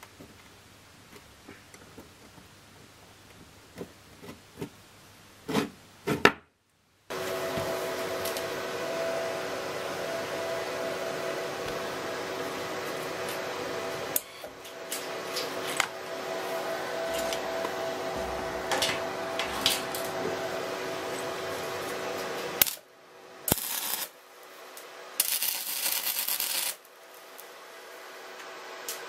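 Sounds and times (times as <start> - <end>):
welder humming: 7.1 - 29.0
welding arc crackle: 18.7 - 24.2, 24.8 - 27.6.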